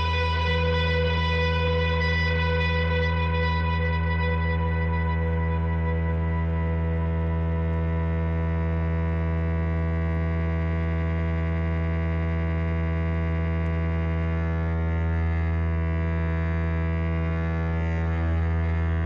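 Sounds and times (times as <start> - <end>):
band playing low drone: 0.0 - 11.4.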